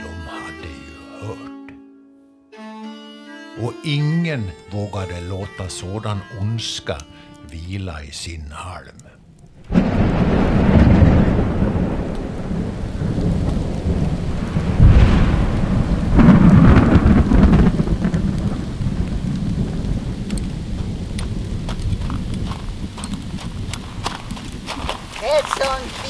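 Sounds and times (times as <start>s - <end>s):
steady rain: 6.9s - 26.0s
thunder rumbling: 9.5s - 26.0s.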